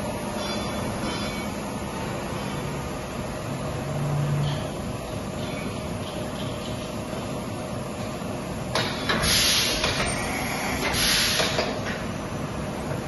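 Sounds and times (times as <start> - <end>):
compressed air hissing: 9.1 - 11.8.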